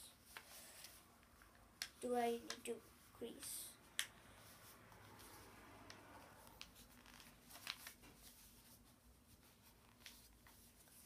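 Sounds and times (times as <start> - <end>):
paper being folded: 6.4 - 11.0.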